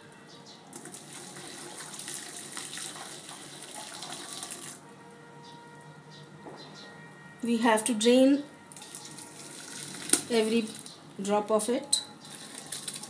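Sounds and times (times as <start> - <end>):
water pouring through colander: 0.7 - 4.8, 8.7 - 10.9, 12.2 - 13.0.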